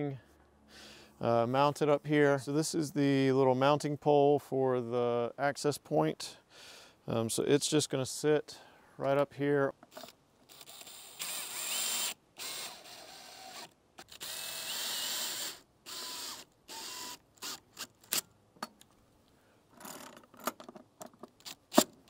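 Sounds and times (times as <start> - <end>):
cordless drill driving screws: 10.0 - 18.2.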